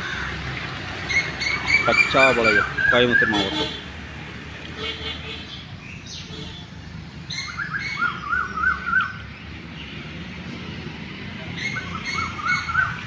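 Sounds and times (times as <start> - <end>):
bird calling: 1.0 - 3.8, 7.3 - 9.6, 11.5 - 13.0.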